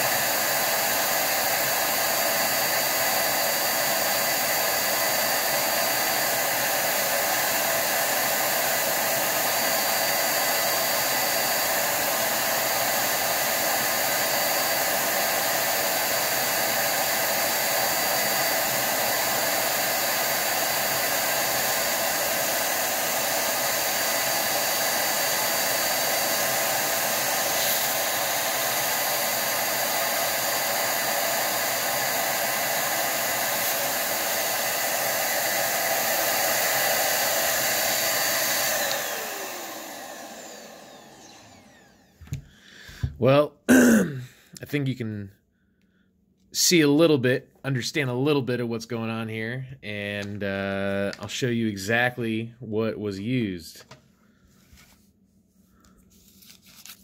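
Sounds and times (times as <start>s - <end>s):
electric duster blowing air: 0.0s - 44.2s.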